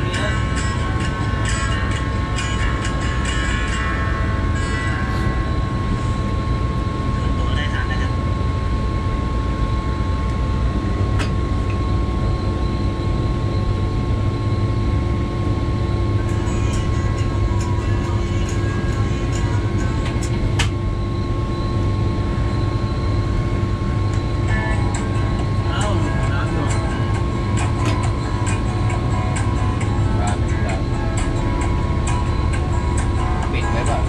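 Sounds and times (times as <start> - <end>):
constant whine: 0.0 - 34.0
locomotive engine drone: 0.0 - 34.0.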